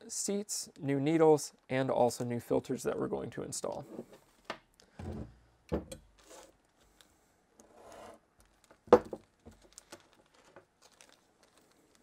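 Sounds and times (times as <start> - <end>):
plastic bag crinkling: 8.4 - 12.0.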